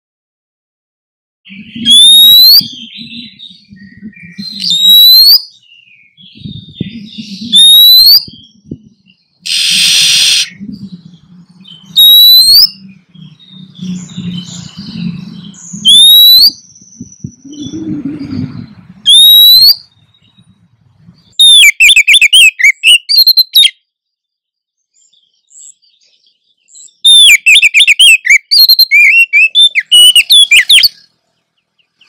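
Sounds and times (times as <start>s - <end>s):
bird rising whistle: 1.5s - 3.4s, 4.2s - 5.5s, 7.2s - 8.4s, 9.5s - 10.6s, 11.9s - 12.9s, 15.8s - 17.9s, 19.0s - 19.9s, 21.4s - 23.7s, 27.0s - 31.0s
bird chattering notes: 6.3s - 23.7s, 27.1s - 31.1s
bird harsh buzzy rasp: 9.5s - 10.6s
low hum: 9.7s - 12.0s.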